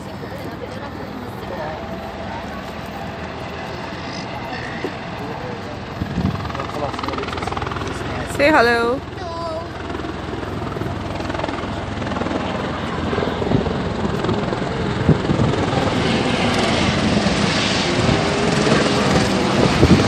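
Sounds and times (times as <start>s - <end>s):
wind on microphone: 6.0s - 6.8s, 13.4s - 20.0s.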